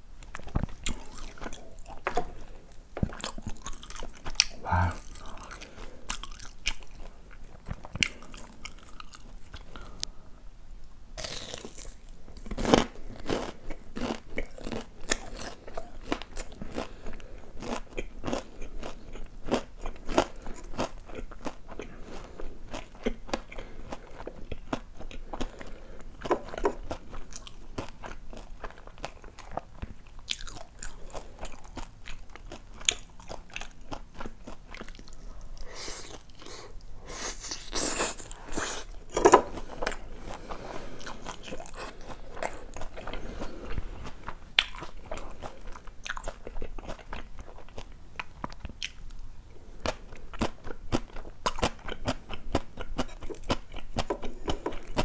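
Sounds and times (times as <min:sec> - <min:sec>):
crunchy chewing: 0:00.3 - 0:10.2, 0:11.2 - 0:55.0.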